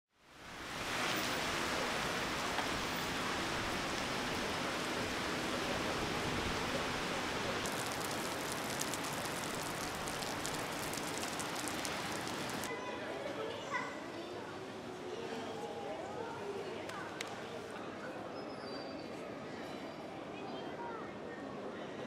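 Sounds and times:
heavy rain hissing: 0.2s - 12.7s
raindrops pattering close by: 0.8s - 12.7s.

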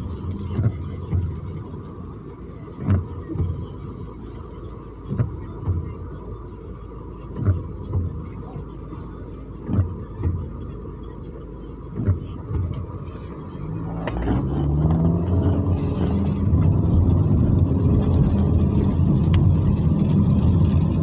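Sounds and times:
windshield wipers thumping: 0.0s - 6.5s, 7.1s - 21.0s
car engine idling: 0.0s - 21.0s.

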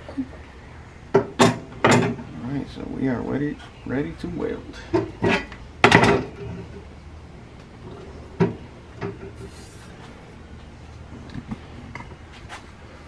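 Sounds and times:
metal plates and clamp clanking: 4.8s - 6.8s.

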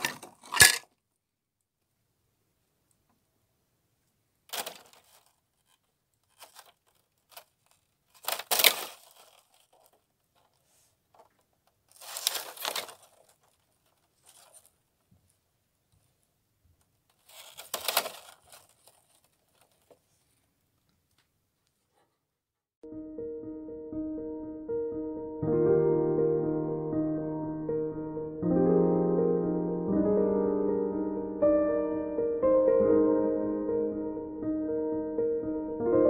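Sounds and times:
ice crackling and crunching: 4.5s - 10.6s, 11.9s - 14.8s, 17.2s - 20.0s.

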